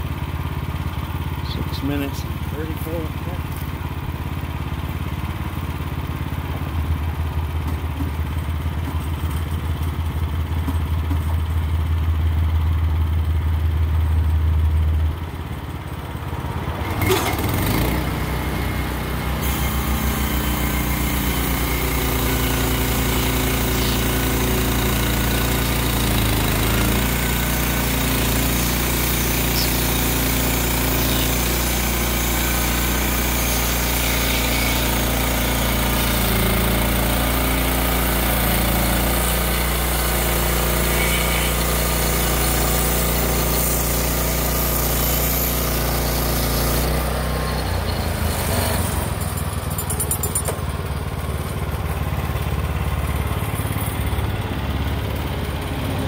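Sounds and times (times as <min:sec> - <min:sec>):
sawmill gasoline engine running: 0:00.0 - 0:56.0
band blade cutting log: 0:16.9 - 0:49.7.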